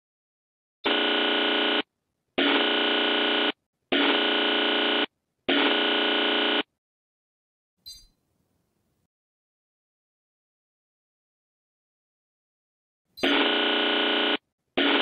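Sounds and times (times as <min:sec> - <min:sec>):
harsh electronic buzzer: 0:00.8 - 0:06.8, 0:13.2 - 0:15.0.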